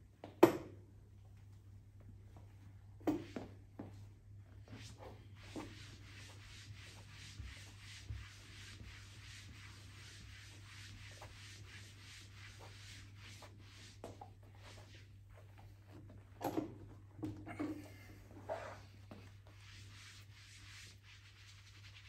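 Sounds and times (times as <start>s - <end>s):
hands brushing over fabric: 4.6s - 16.0s, 18.4s - 22.0s.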